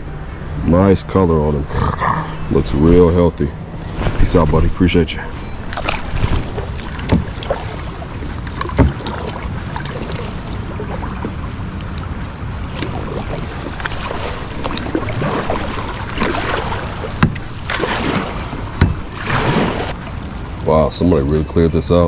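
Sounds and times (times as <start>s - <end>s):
kayak paddle splashing water: 5.6s - 20.0s.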